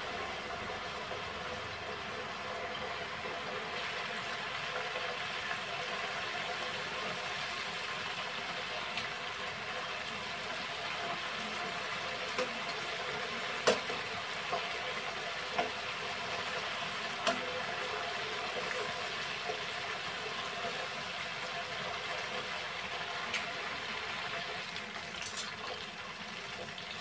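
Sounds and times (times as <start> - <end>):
oil sizzling: 0.0 - 27.0
metal tongs knocking pot: 13.6 - 14.6.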